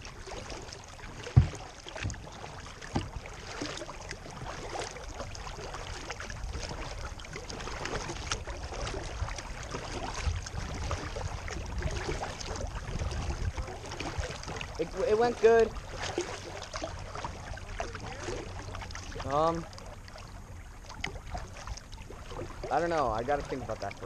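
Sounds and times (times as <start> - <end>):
water lapping against kayak hull: 0.0 - 24.0
wind rumble on microphone: 0.0 - 24.0
light knocks: 1.3 - 2.2.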